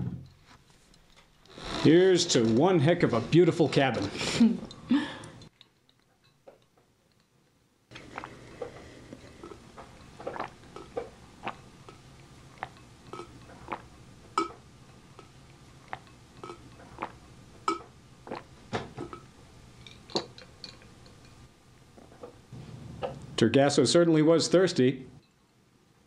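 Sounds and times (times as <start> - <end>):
woman gulping a drink: 7.9 - 21.2.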